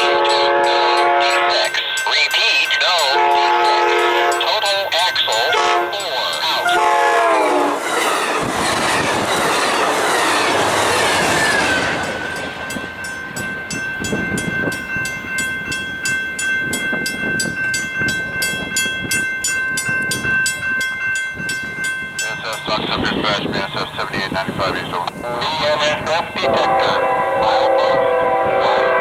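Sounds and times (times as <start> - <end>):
crossing bell ringing: 0.0 - 29.0
train cars rushing past: 0.0 - 29.0
clatter of wheels on rail joints: 7.8 - 15.5.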